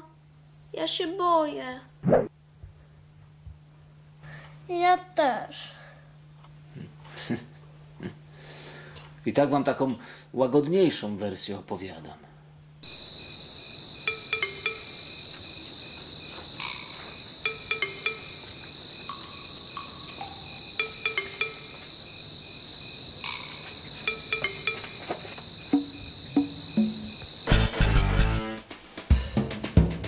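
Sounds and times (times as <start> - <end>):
crickets chirping: 12.8 - 27.6
music with drums: 24.1 - 30.0.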